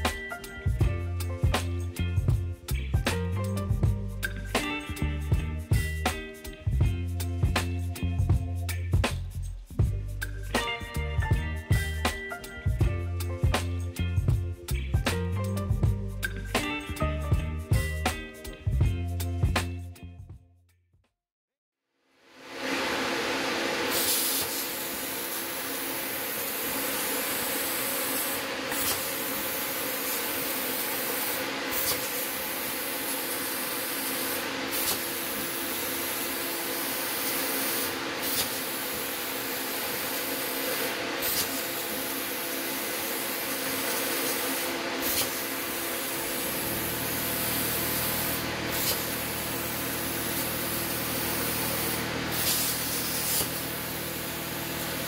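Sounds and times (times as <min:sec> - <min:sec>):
plasma torch air hissing: 0:22.4 - 0:55.0.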